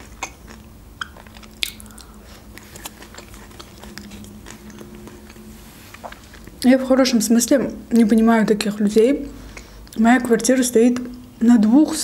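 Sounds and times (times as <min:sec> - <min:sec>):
close-up chewing: 0:00.0 - 0:06.7
wet mouth sounds: 0:00.0 - 0:06.7.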